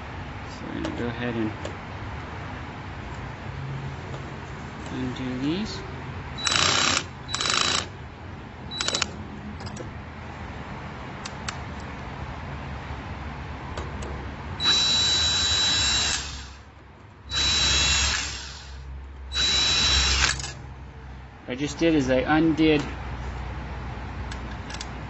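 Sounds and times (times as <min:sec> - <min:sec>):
cordless drill motor whine: 0:06.4 - 0:07.9, 0:14.6 - 0:16.6, 0:17.3 - 0:20.6.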